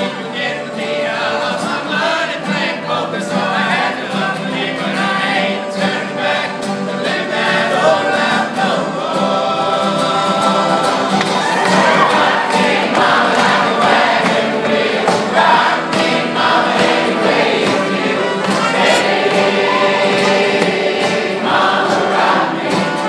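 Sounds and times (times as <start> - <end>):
acoustic band playing: 0.0 - 23.0
men singing together: 0.0 - 23.0.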